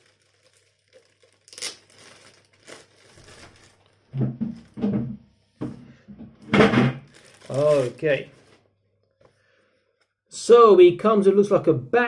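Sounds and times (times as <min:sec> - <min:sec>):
packaging rustling and crinkling: 0:00.0 - 0:04.8, 0:07.0 - 0:08.7.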